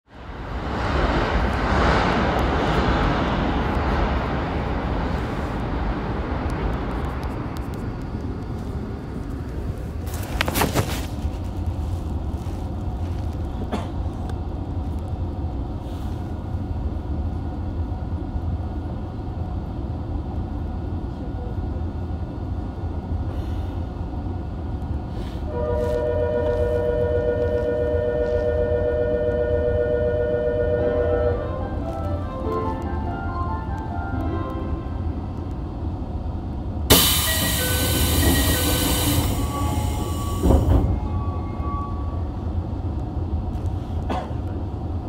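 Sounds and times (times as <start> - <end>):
subway car equipment hum: 0.0 - 45.0
rushing noise: 0.1 - 12.0.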